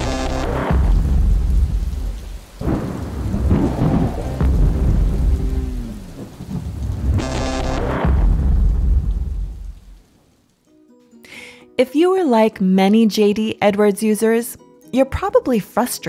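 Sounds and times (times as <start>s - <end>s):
deep rumble with noisy wash: 0.9s - 9.6s
low falling tones: 1.0s - 9.5s
impact hit: 2.6s - 6.1s.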